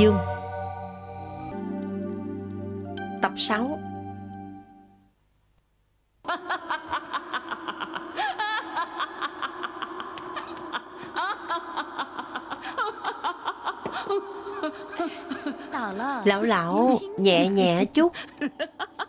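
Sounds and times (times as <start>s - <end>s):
woman cackling laugh: 6.3s - 15.9s, 18.2s - 19.0s.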